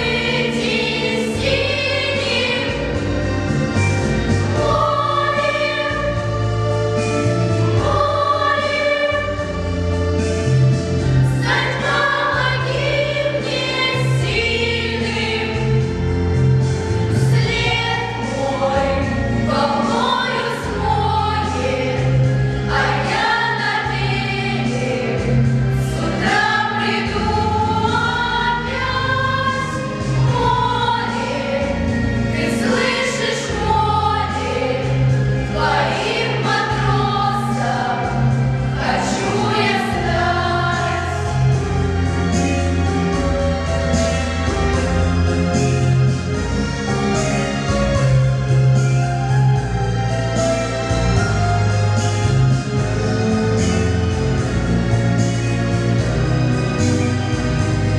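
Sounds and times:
girls singing together: 0.0 - 3.0, 4.5 - 6.6, 7.8 - 9.4, 11.3 - 15.6, 17.1 - 41.5
instrumental accompaniment with bass: 0.0 - 57.9.

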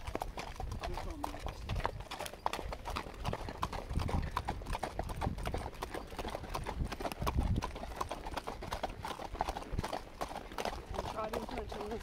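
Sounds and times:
horse hooves clip-clopping on dirt: 0.0 - 12.0.

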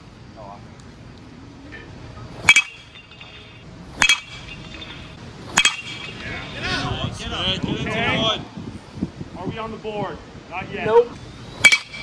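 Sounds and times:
bat hitting baseball ping: 2.4 - 6.5, 11.6 - 12.0.

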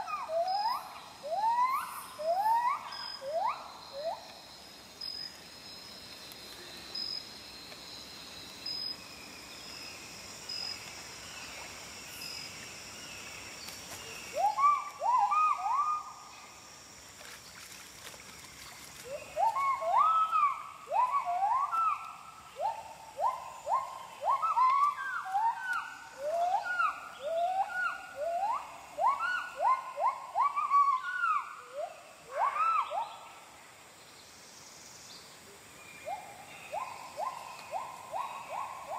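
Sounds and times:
high insect drone: 0.0 - 38.9.

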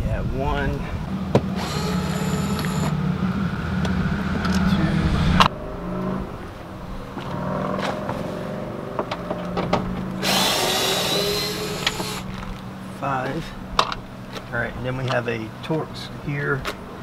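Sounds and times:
cordless driver whirring: 1.5 - 3.0, 10.2 - 12.3.

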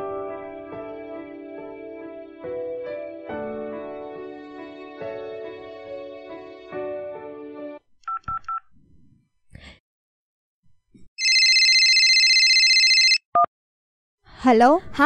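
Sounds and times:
background music: 0.0 - 7.8
keypad dialing beeps: 11.2 - 13.5
phone ringing tone: 11.2 - 13.5.

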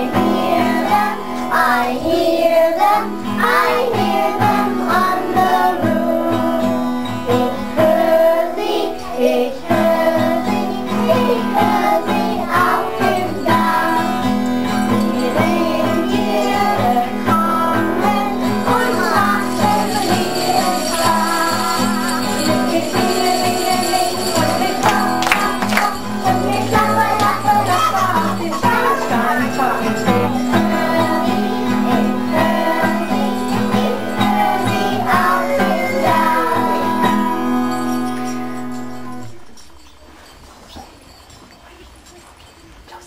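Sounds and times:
jingle bells shaking: 12.5 - 17.0, 18.1 - 43.0.

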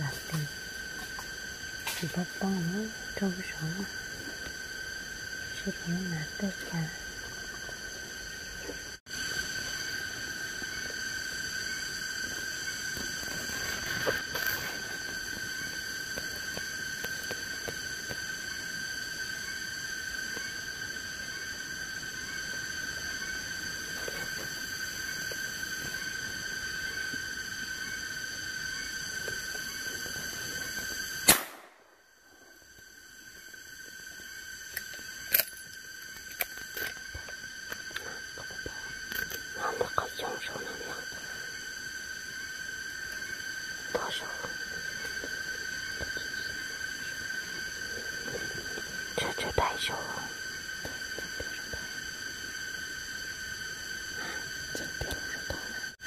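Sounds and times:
high-pitched insect drone: 0.0 - 56.0
gunshot: 31.2 - 31.8.

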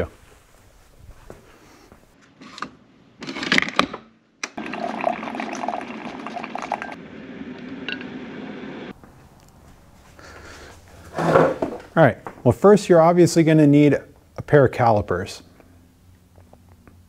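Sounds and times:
coffee maker hissing and gurgling: 4.6 - 7.0.

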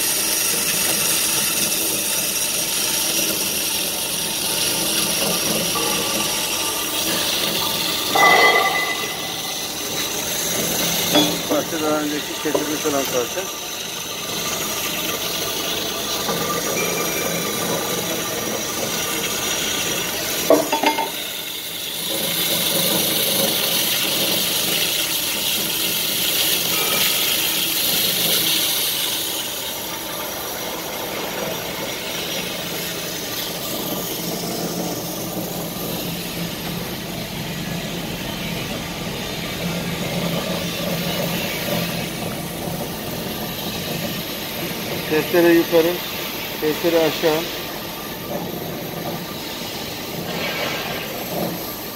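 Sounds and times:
metal clang with ring: 8.1 - 10.0, 11.1 - 11.6, 20.5 - 21.2.

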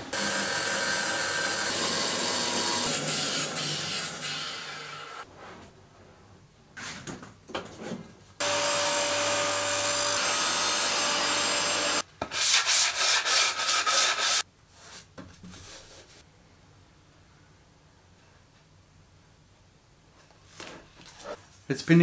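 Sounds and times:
table saw cutting wood: 0.1 - 5.2, 8.4 - 12.0
sanding block rubbing wood: 12.4 - 14.4.

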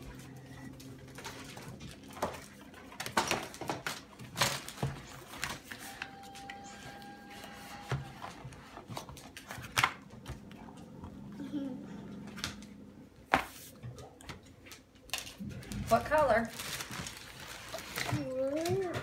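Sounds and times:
plastic mat crinkling and rustling: 0.0 - 10.0, 14.6 - 19.0.

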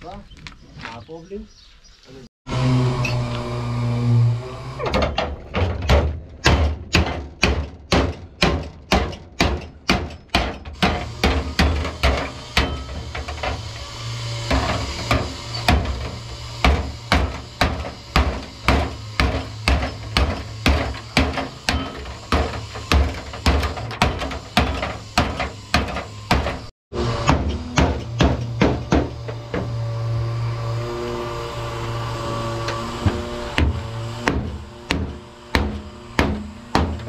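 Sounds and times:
hammer striking sheet metal: 4.9 - 29.8, 32.7 - 37.0.

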